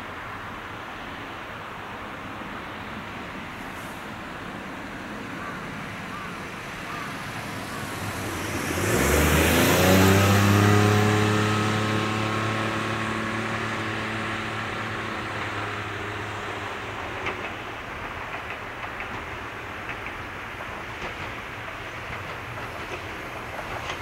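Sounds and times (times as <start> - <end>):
car passing by: 2.7 - 18.0.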